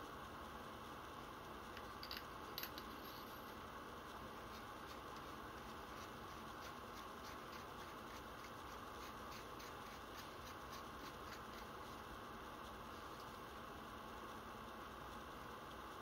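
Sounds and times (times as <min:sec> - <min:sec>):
steady low hiss: 0:00.0 - 0:16.0
light ticks and rubbing: 0:01.8 - 0:12.1.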